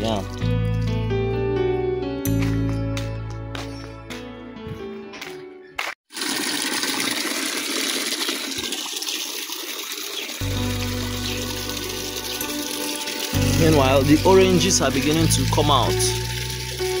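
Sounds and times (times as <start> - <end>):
background music: 0.0 - 5.8, 10.4 - 17.0.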